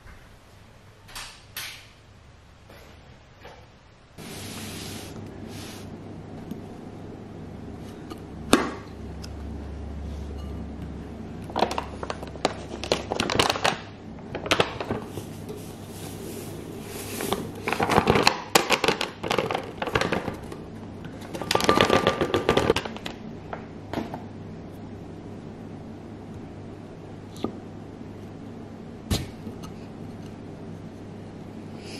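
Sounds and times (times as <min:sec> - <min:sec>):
packet crinkling and rustling: 0:11.5 - 0:15.1, 0:17.2 - 0:20.4.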